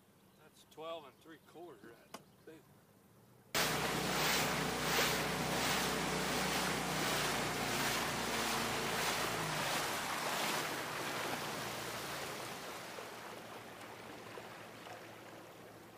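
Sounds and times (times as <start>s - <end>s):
outboard motor hum: 3.6s - 15.9s
water rushing past hull: 3.6s - 15.9s.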